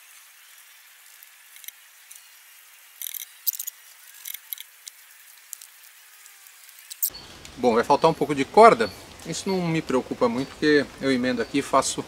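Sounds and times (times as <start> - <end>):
rope scraping against wooden poles: 0.0 - 7.1
faint steady hiss: 0.0 - 12.0.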